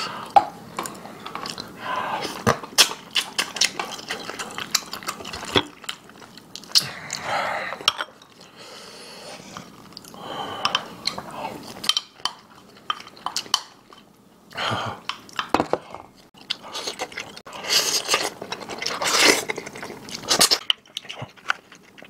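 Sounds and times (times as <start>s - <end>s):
chewing and gnawing meat: 2.7s - 6.8s, 16.3s - 22.0s.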